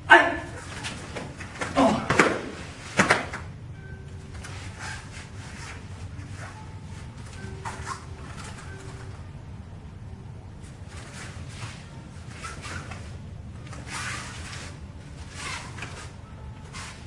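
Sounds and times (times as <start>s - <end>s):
short sharp shouts: 0.0s - 0.6s.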